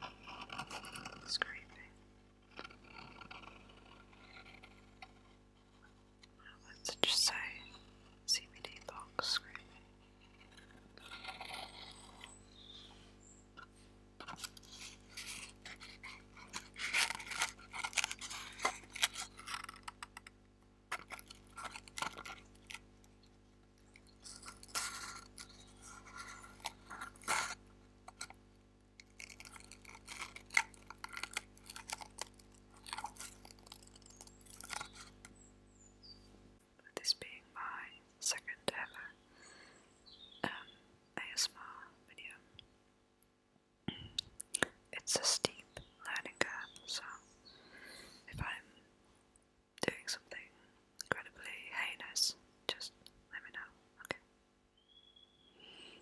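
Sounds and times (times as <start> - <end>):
fingers scratching cardboard box: 0.0 - 1.3, 14.2 - 20.3, 24.2 - 27.6
low electrical hum: 0.0 - 56.0.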